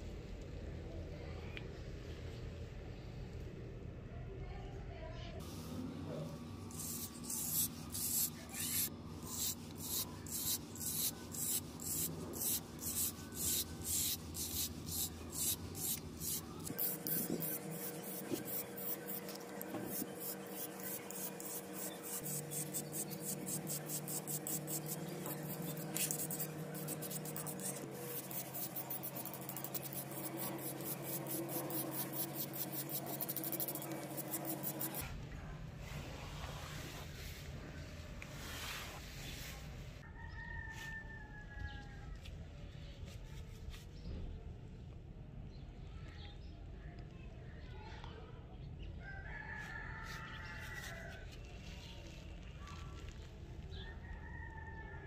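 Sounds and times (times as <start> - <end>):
brush scrubbing metal: 6.7 - 35.0.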